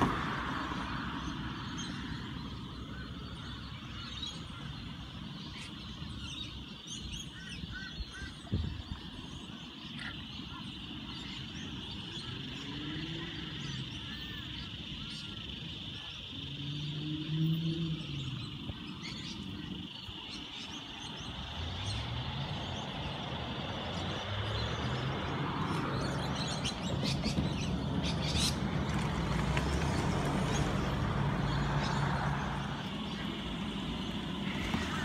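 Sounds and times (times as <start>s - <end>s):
passing engine: 0.0s - 5.7s, 10.8s - 35.0s
birds chirping: 0.0s - 35.0s
vehicle engine rumble: 8.1s - 35.0s.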